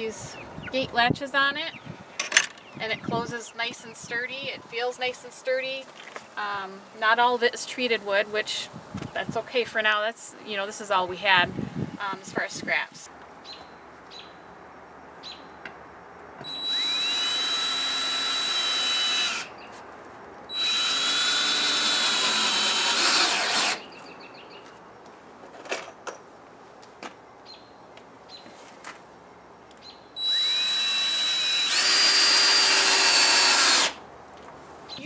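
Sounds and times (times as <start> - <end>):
cordless drill whining: 16.4 - 19.5, 20.5 - 23.8, 30.2 - 34.0.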